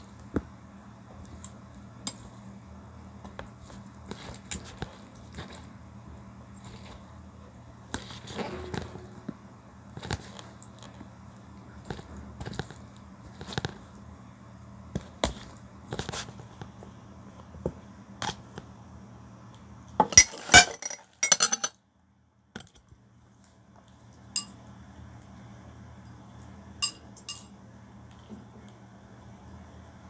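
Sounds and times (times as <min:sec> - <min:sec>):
cutlery clinking on a bowl: 0:20.0 - 0:21.8, 0:24.3 - 0:24.6, 0:26.8 - 0:27.6.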